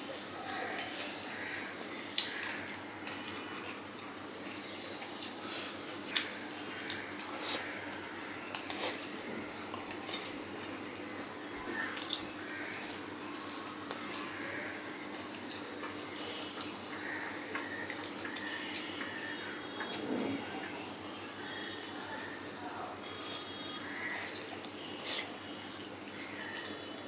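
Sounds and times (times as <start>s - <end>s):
faint steady hum: 0.0s - 27.0s
wet chewing: 5.2s - 10.8s, 11.6s - 20.0s, 23.0s - 27.0s.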